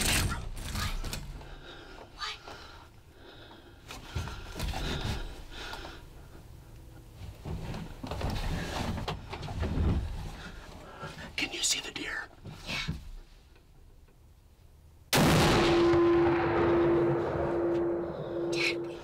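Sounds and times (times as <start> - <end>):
hushed breathing: 0.7 - 6.8.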